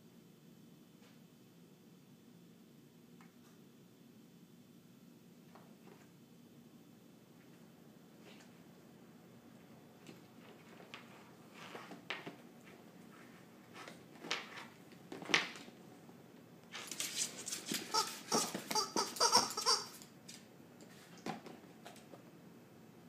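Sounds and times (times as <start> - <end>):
dog scrabbling: 16.8 - 20.0
squeaky toy squeaking: 17.9 - 20.0.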